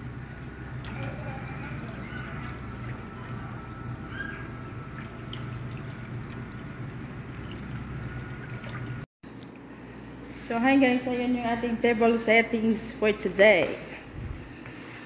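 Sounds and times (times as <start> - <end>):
water trickling from tap: 0.0 - 9.1
low steady hum: 0.0 - 14.7.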